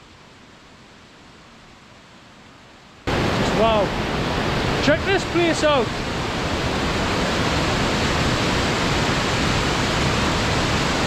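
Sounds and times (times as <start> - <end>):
waterfall rushing: 3.1 - 11.0.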